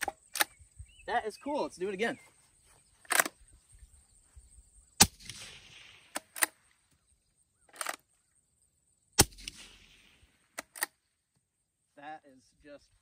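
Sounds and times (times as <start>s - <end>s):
rifle bolt metal clicks: 3.1s - 3.4s, 6.1s - 6.6s, 10.6s - 11.0s
suppressed rifle shots: 5.0s - 6.7s, 9.2s - 11.0s.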